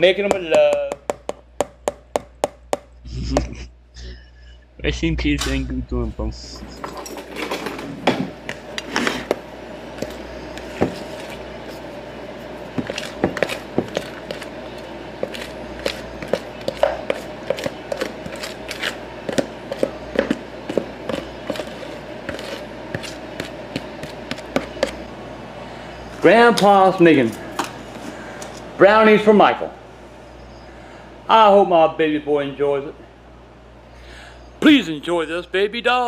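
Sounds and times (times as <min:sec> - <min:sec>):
utensil scraping a bowl: 0:12.7 - 0:25.0.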